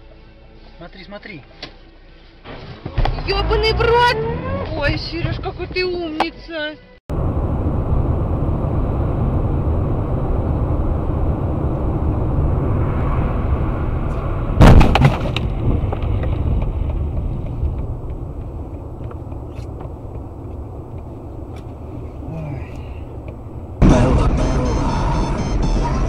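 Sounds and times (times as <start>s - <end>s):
road and wind rumble in car: 2.7s - 6.3s, 7.1s - 26.0s
loud sudden bang with clatter: 14.6s - 15.5s.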